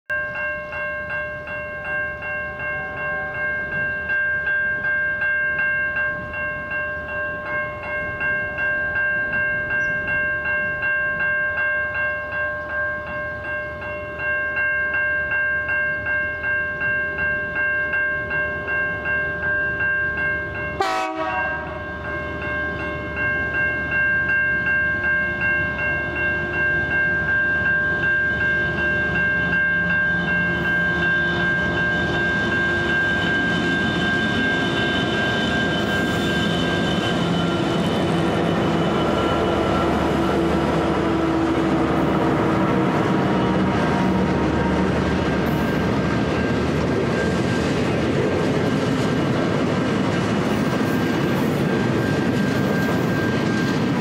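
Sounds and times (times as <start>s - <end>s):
level crossing warning bell: 0.1s - 49.0s, 50.4s - 54.0s
diesel locomotive rumble: 27.9s - 54.0s.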